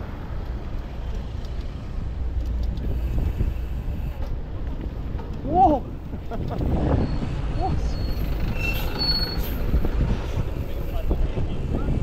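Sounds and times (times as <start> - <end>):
bicycle road noise: 0.0 - 12.0
traffic: 0.0 - 12.0
wind rumble on microphone: 0.2 - 12.0.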